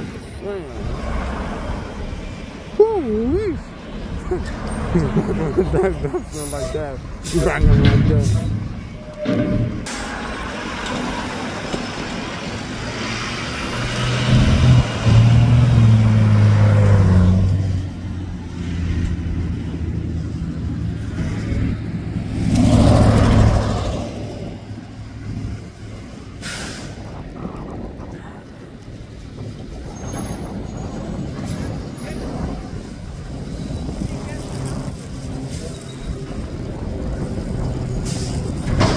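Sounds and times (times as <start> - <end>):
garbage truck diesel engine: 0.0 - 27.8, 35.2 - 38.9
sharp hiss of air: 26.4 - 27.1.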